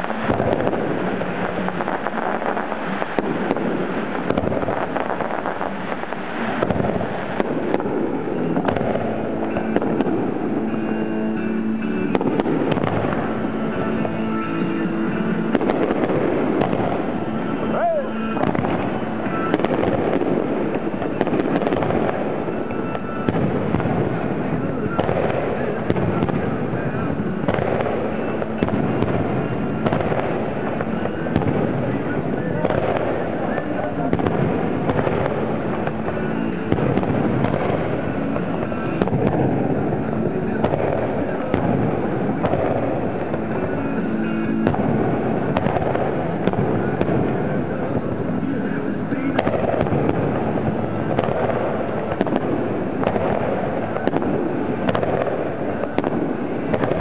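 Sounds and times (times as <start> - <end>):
firework shells bursting: 0.0 - 10.9, 12.0 - 57.0
loud firework report: 0.0 - 57.0
crackling pops: 15.5 - 43.6, 44.5 - 48.4, 49.1 - 57.0.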